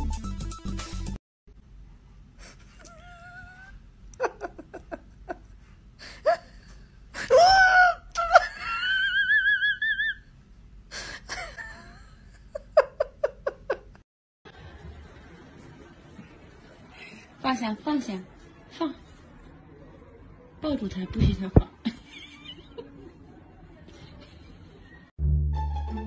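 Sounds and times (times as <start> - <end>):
person laughing hard: 3.0 - 5.4, 7.2 - 10.2.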